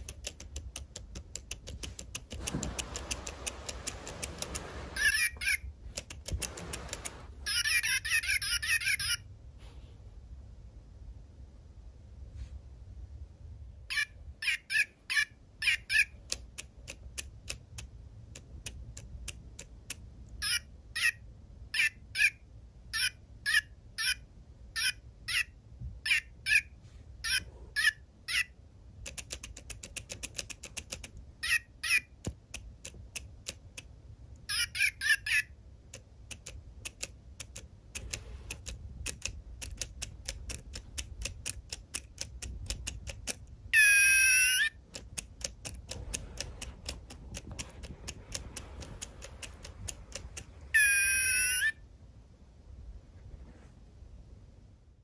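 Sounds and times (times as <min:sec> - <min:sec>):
quick dry clicks: 0:00.0 - 0:07.8, 0:29.0 - 0:31.3, 0:32.2 - 0:43.6, 0:44.4 - 0:51.7
robot toy electronic beeps: 0:05.0 - 0:05.6, 0:34.5 - 0:35.5, 0:43.8 - 0:44.7, 0:50.7 - 0:51.8.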